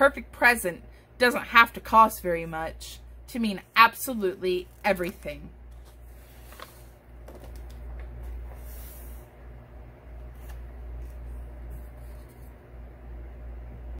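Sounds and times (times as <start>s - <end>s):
steady low hum: 0.0s - 13.9s
page turning swish: 5.0s - 9.3s, 10.2s - 12.6s.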